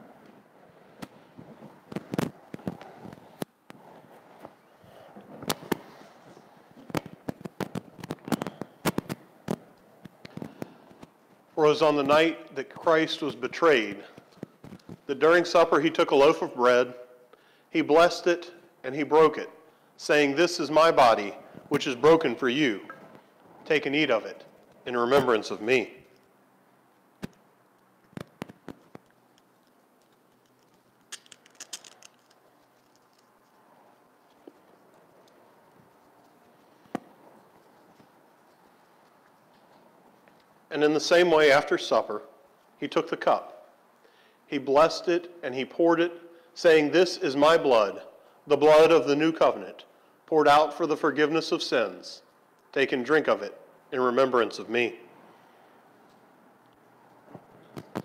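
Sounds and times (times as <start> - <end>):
sharp clicks and crackles: 6.8 - 11.1, 27.2 - 40.5.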